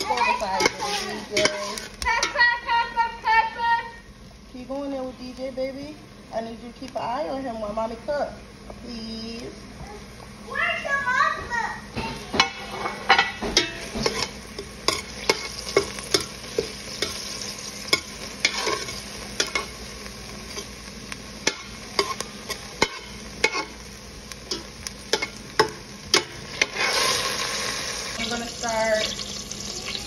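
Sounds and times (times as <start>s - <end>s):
vegetables sizzling in oil: 0.0s - 10.6s, 11.8s - 30.0s
utensil scraping a steel pan: 0.1s - 2.4s, 26.5s - 27.3s.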